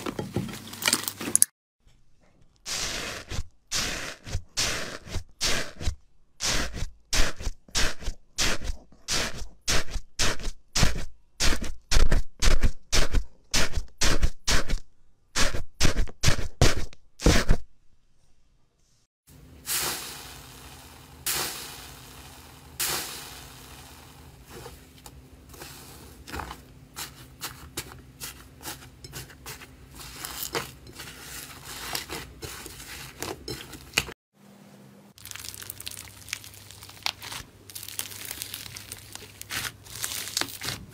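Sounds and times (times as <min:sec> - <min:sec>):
slime crackling: 0:35.2 - 0:40.9
slime squishing: 0:35.2 - 0:40.9.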